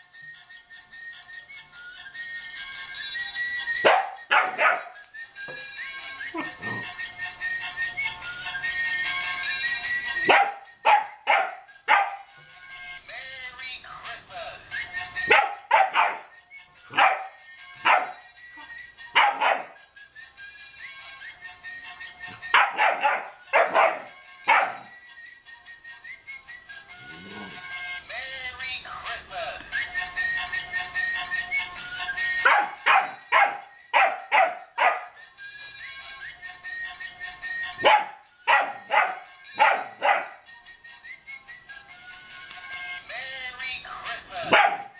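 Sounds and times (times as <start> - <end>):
toy playing a tune: 0.0 - 44.9
puppy barking: 3.8 - 5.0, 10.2 - 12.3, 15.3 - 16.3, 16.9 - 18.2, 19.2 - 19.8, 22.5 - 24.9, 32.4 - 35.2, 37.8 - 40.4, 44.4 - 44.9.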